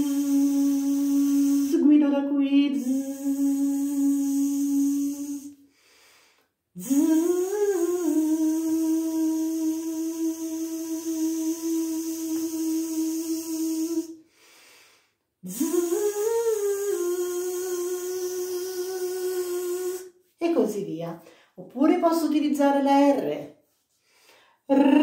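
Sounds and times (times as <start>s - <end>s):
man humming a buzzing zzz: 0.0s - 1.8s, 2.8s - 5.5s, 6.8s - 14.1s, 15.5s - 20.1s.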